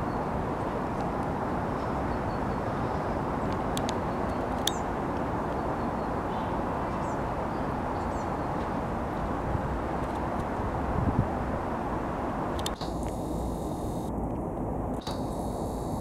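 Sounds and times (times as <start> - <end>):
faint sharp clicks: 3.5 - 5.3, 12.6 - 13.2.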